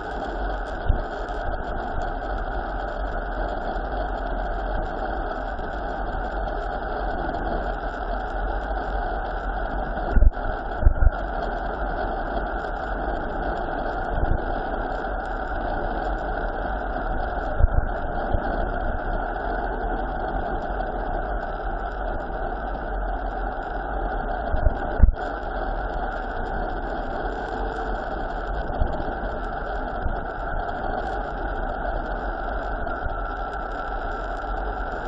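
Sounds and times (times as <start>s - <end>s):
wind rush on microphone: 0.0s - 35.0s.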